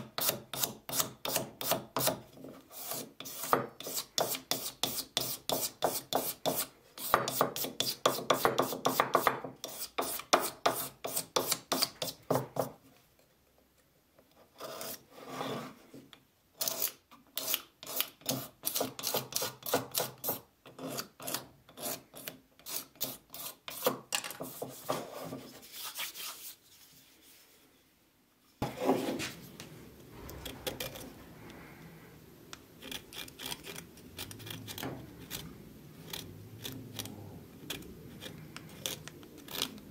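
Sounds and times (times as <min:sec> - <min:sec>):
metal scraper rasping on wood: 0:00.0 - 0:12.8, 0:16.6 - 0:26.3, 0:32.8 - 0:39.8
soft even scraping: 0:28.6 - 0:39.7.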